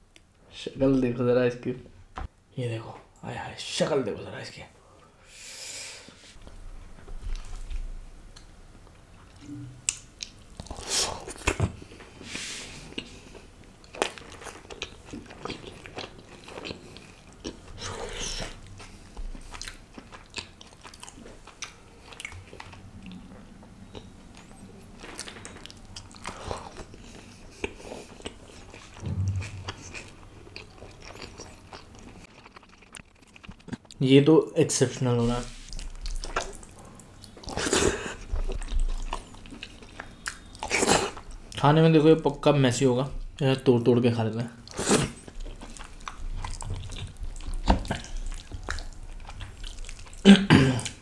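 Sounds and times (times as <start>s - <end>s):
man chewing with wet smacks: 7.1s - 12.0s, 12.8s - 34.0s, 35.7s - 41.6s, 44.6s - 51.0s.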